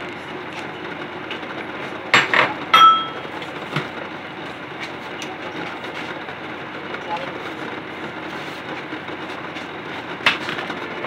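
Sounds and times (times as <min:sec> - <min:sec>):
ceramic dishes clinking: 0:02.8 - 0:03.2.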